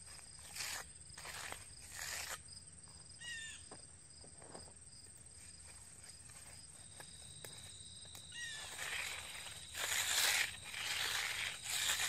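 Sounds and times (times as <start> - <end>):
float scraping wet concrete: 0.5 - 2.4, 8.5 - 12.0
high insect trilling: 8.0 - 12.0.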